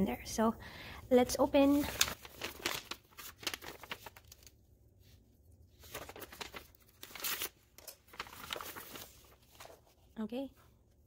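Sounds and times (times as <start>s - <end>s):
envelope rustling and crinkling: 1.4s - 4.6s, 5.7s - 10.2s.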